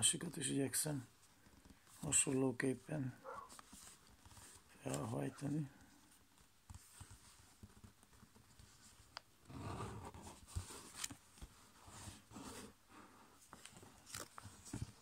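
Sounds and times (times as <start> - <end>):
paper rustling and folding: 3.5 - 12.8, 13.4 - 15.0.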